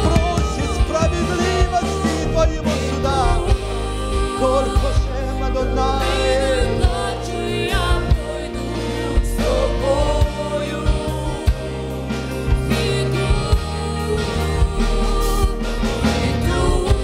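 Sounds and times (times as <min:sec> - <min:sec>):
drum hits: 0:00.0 - 0:03.8
instrumental accompaniment: 0:00.0 - 0:17.0.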